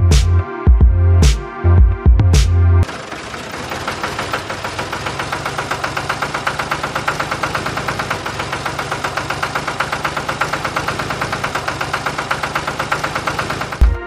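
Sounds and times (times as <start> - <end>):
engine chugging: 2.8 - 14.0.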